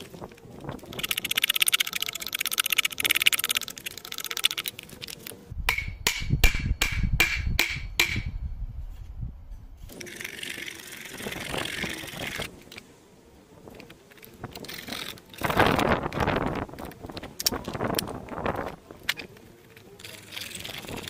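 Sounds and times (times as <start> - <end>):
sharp ringing knocks: 5.7 - 8.4.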